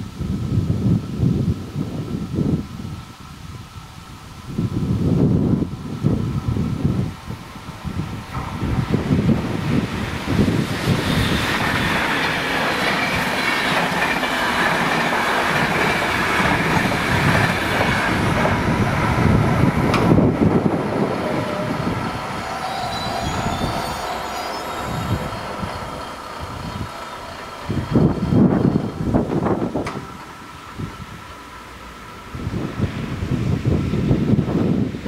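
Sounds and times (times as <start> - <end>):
train wheels clattering on rails: 8.1 - 31.3.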